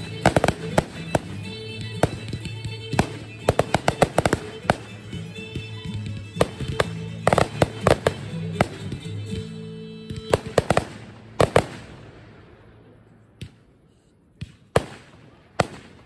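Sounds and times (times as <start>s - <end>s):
fireworks bangs and cracks: 0.0s - 9.5s, 10.1s - 12.4s, 14.4s - 16.0s
music playing: 0.0s - 12.6s.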